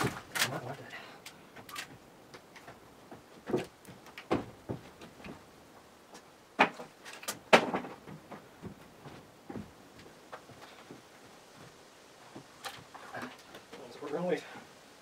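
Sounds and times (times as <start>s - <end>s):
footsteps on wooden boards: 1.4s - 14.7s
wooden boards knocking: 3.4s - 5.1s, 6.6s - 8.8s.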